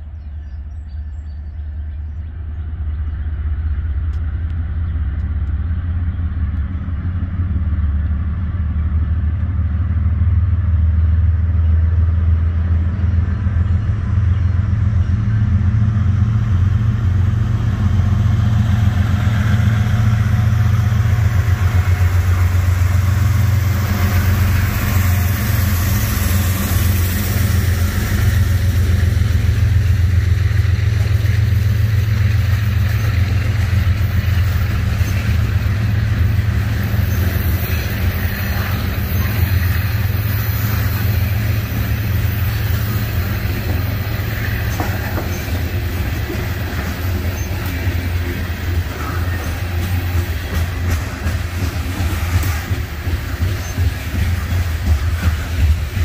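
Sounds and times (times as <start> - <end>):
diesel locomotive engine drone: 0.0 - 56.0
wheel and rail hiss: 14.6 - 56.0.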